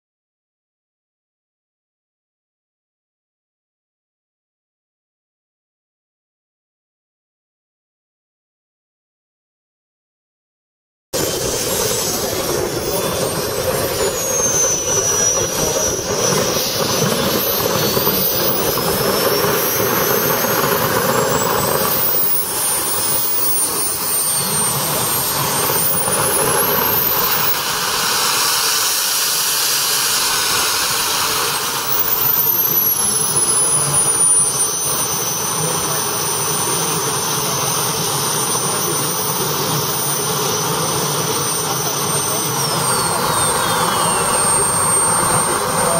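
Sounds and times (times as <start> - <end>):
gas turbine whining: 11.2 - 45.9.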